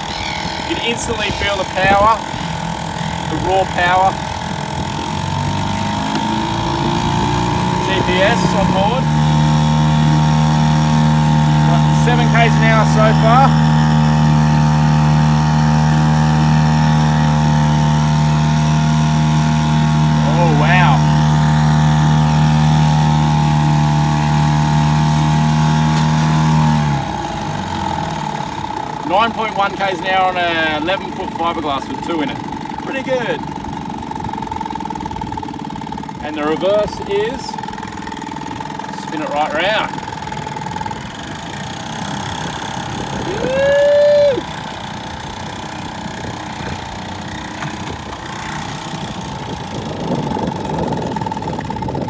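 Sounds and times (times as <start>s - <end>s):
loud held tone: 0.0s - 4.9s
outboard motor running: 0.0s - 52.0s.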